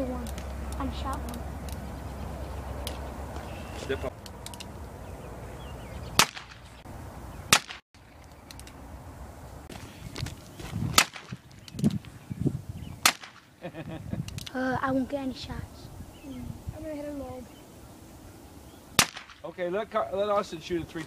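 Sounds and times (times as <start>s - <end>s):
gunshots: 6.2s - 6.7s, 7.5s - 7.8s, 13.0s - 13.4s, 19.0s - 19.4s.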